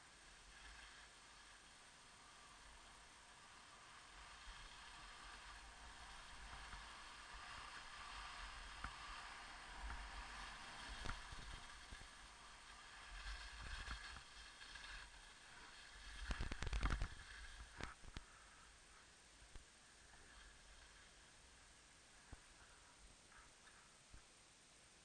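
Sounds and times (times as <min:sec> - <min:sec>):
skis scraping over snow: 0:00.1 - 0:19.1, 0:19.8 - 0:23.9.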